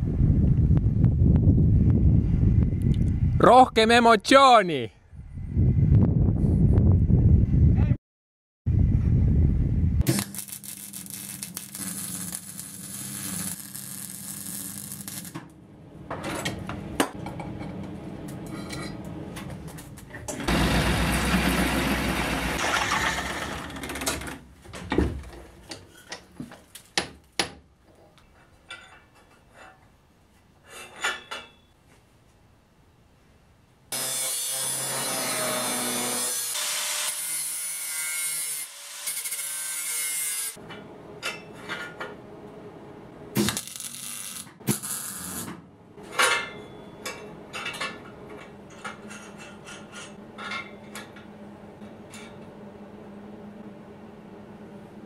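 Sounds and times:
arc welding crackling: 10.0 - 15.5, 43.4 - 45.5
power tool working steel: 20.4 - 24.0, 33.9 - 40.6.

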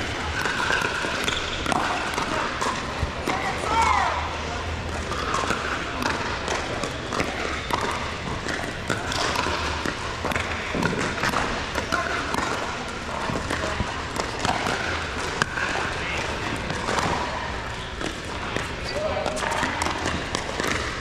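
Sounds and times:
crowd chatter: 0.0 - 21.0
basketball bouncing on court: 5.1 - 17.2.

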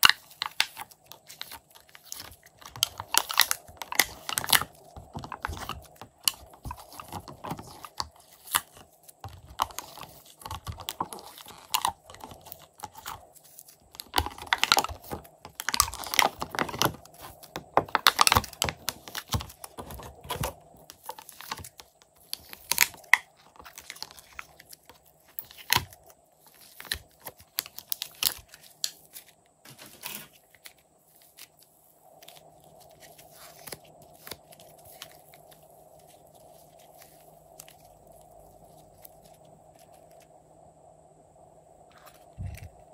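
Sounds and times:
plastic tray crackling and clicking: 0.0 - 29.0.

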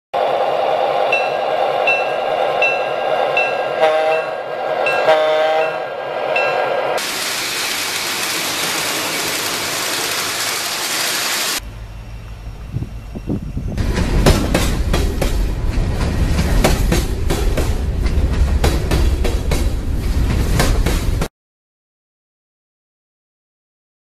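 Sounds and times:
model diesel locomotive running: 0.2 - 21.2
model locomotive bell ringing: 1.1 - 5.8
short horn blasts: 3.8 - 4.4, 5.0 - 5.8.

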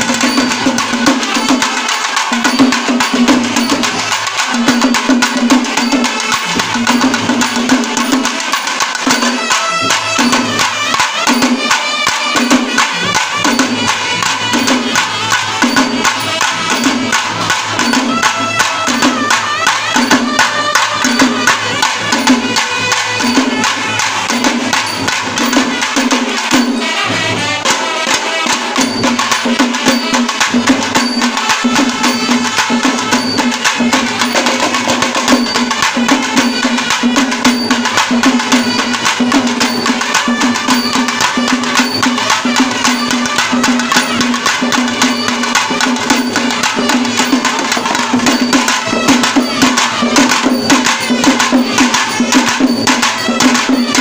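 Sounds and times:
steady low drum beat: 0.0 - 54.0
trumpets and clarinet playing: 9.4 - 24.8, 26.8 - 28.8, 40.0 - 54.0.

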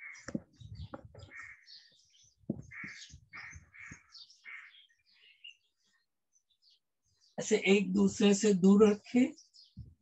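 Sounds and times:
crows cawing: 0.0 - 0.6, 1.2 - 5.3
rustles and thumps near microphone: 0.2 - 1.5, 2.4 - 4.1.

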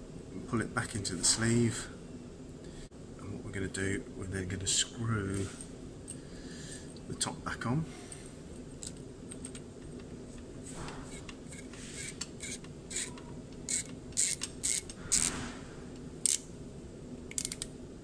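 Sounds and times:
screw cap threads creaking: 11.1 - 15.3, 17.3 - 17.7.

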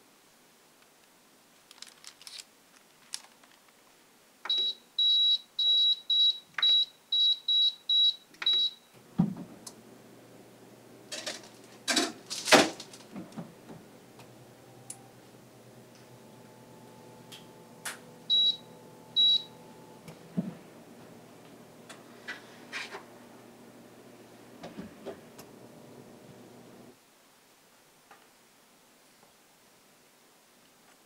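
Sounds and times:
control panel beeping: 4.5 - 8.8, 16.2 - 20.0
fan humming: 8.5 - 27.0
baking tray clattering: 11.1 - 13.5.

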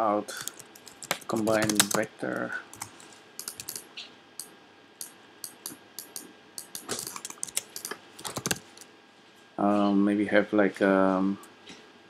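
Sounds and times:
keyboard keys tapping: 0.4 - 3.8, 5.4 - 8.8
mouse clicks: 4.4 - 8.4.

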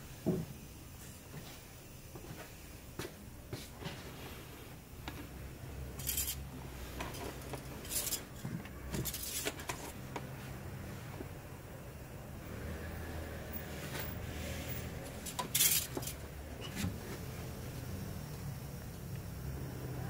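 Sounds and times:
light metal clicks and scrapes: 6.0 - 10.3, 13.9 - 16.9.

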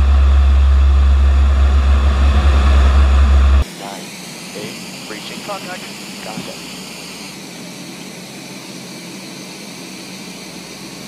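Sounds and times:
low hum: 0.0 - 4.4
aircraft cabin engine hiss: 1.5 - 11.0.

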